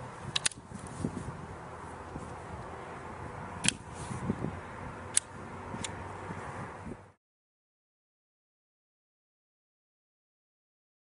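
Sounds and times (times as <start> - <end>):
revolver metallic clicks: 0.3 - 0.9, 3.6 - 3.9, 5.1 - 6.0.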